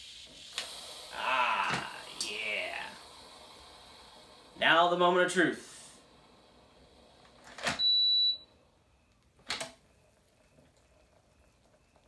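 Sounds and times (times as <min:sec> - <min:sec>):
high electronic beep: 0:07.8 - 0:09.1.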